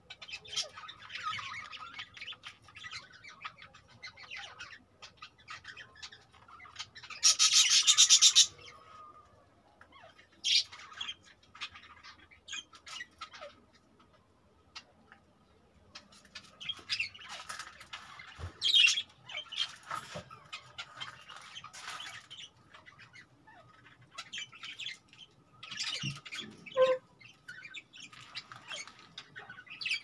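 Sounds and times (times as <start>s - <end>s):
budgerigars chattering and squawking: 0.0s - 9.0s, 10.0s - 13.8s, 16.0s - 30.0s.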